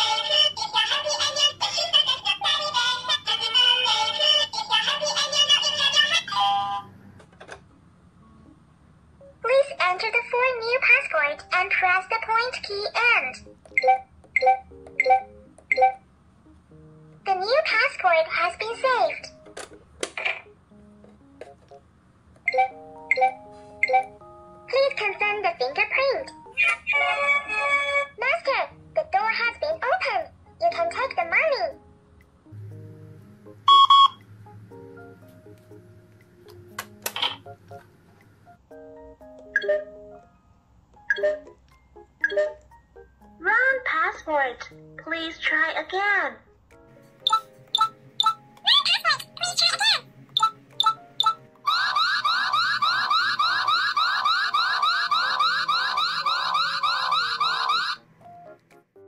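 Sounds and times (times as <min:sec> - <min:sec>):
background music: 0:00.0 - 0:59.0
toy bank beeping: 0:13.7 - 0:16.0, 0:22.4 - 0:24.2, 0:33.7 - 0:34.2, 0:37.0 - 0:37.5, 0:39.5 - 0:40.0, 0:41.1 - 0:41.6, 0:42.2 - 0:42.6, 0:47.2 - 0:58.0
electronic alarm siren whooping: 0:50.4 - 0:58.0.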